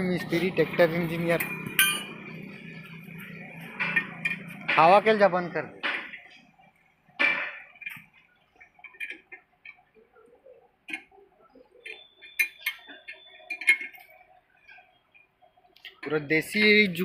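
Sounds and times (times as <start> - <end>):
sharp metallic clinks: 0.0 - 5.1, 11.8 - 14.2
metallic ring: 0.2 - 5.0, 11.9 - 14.2
metal tools clicking and tapping: 0.2 - 10.0, 10.8 - 17.0.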